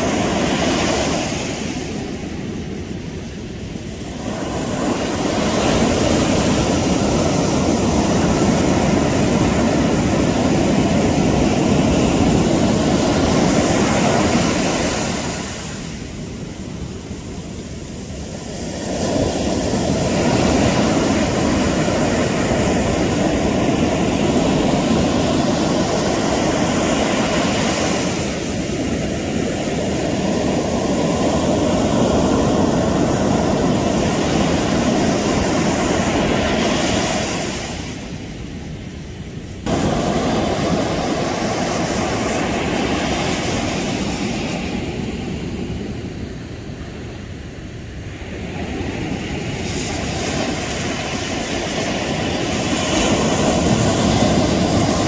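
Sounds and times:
waves breaking: 0:00.0 - 0:55.0
foam rushing up sand: 0:39.6 - 0:44.9.

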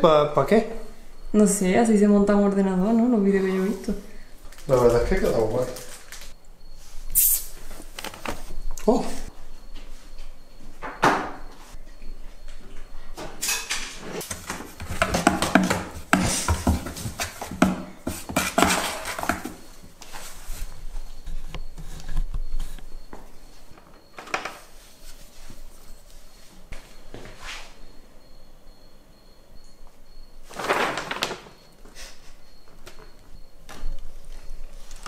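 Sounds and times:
cats scratching cardboard box: 0:14.2 - 0:19.6.

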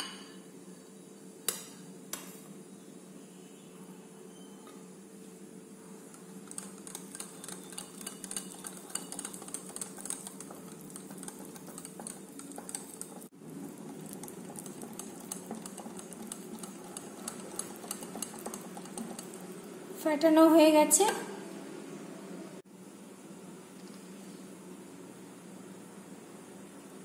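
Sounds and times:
whisk beating batter in glass bowl: 0:06.1 - 0:19.7.

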